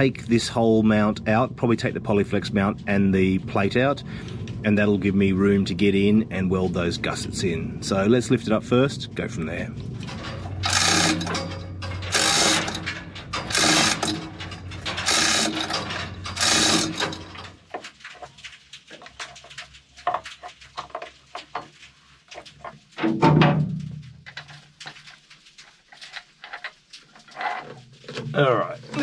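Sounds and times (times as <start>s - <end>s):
spanner clinking on metal nut: 10.0s - 17.7s
hoist chain rattling with ratchet clicks: 10.0s - 17.8s
metal clank: 10.0s - 18.4s, 23.0s - 24.7s.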